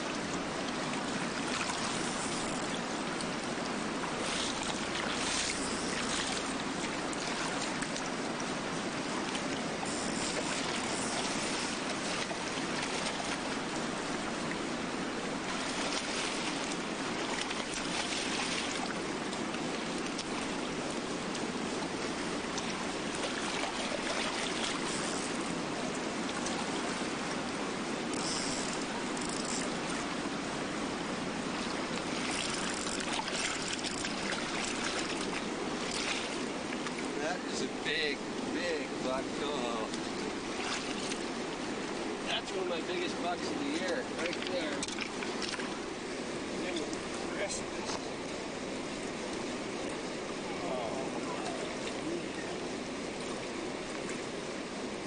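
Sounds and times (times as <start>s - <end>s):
river current rushing: 0.0s - 55.0s.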